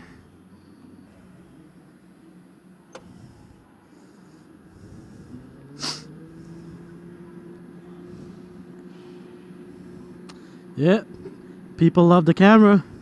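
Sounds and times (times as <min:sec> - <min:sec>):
low rumble of kart rolling: 0:00.0 - 0:13.0
short hiss: 0:05.8 - 0:06.1.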